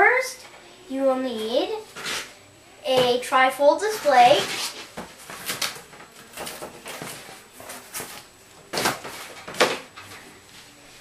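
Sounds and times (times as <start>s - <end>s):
cardboard rustling and scraping: 1.9s - 2.3s, 3.9s - 10.8s.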